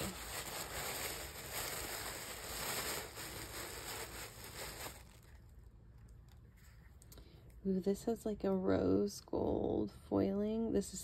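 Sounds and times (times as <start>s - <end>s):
tissue paper rustling: 0.0s - 5.5s.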